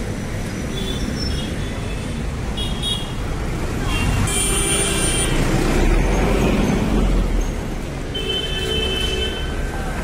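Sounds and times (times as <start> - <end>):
road traffic rumbling: 0.0 - 10.0.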